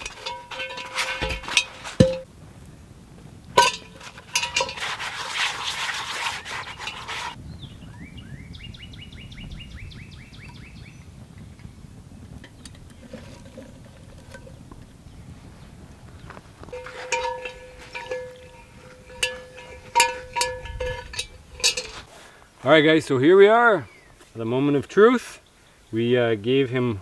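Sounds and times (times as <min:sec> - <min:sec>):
scouring cast-iron pot: 0:00.0 - 0:02.3, 0:03.5 - 0:07.4, 0:12.3 - 0:15.0, 0:16.6 - 0:22.4.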